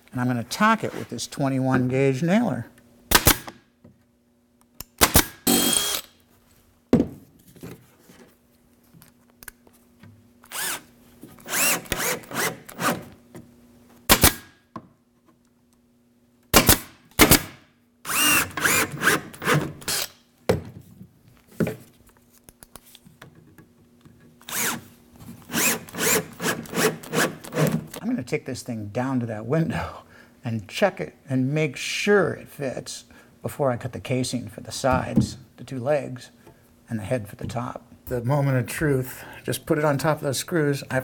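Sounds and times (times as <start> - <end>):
pneumatic nailer firing: 3.1 - 3.6, 5.0 - 6.2, 11.4 - 13.1, 14.1 - 14.6, 16.5 - 20.2, 25.5 - 28.0
cordless drill running: 5.5 - 6.1, 10.5 - 12.9, 18.1 - 20.1, 24.4 - 24.8, 25.5 - 27.8.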